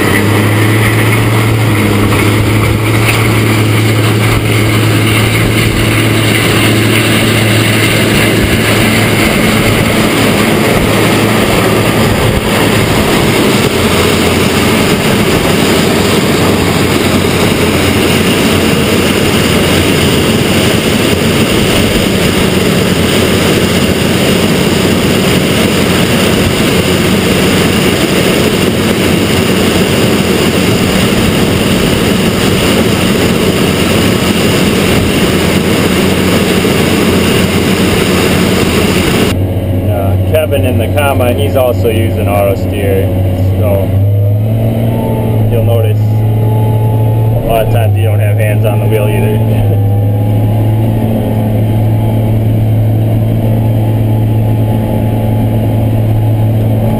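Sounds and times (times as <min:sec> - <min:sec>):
combine harvester machinery noise: 0:00.0 - 0:56.9
low hum: 0:00.0 - 0:56.9.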